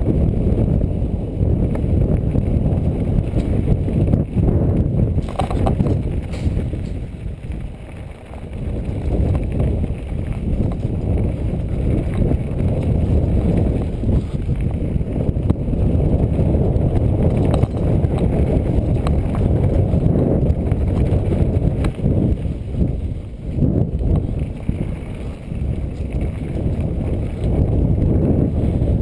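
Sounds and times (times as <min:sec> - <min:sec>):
tyres rumbling on dirt trail: 0:00.0 - 0:29.0
wind on microphone: 0:00.0 - 0:29.0
bike clicks and knocks: 0:01.5 - 0:28.9.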